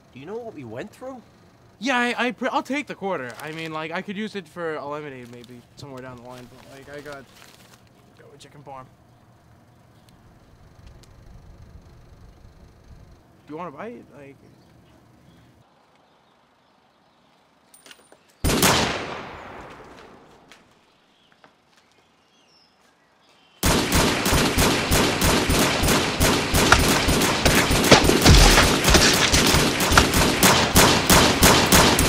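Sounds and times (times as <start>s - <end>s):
handgun gunfire: 23.6s - 32.0s.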